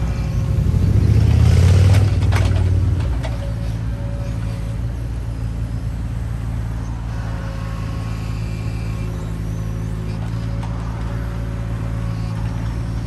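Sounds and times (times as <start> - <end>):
digger diesel engine running: 0.0 - 13.0.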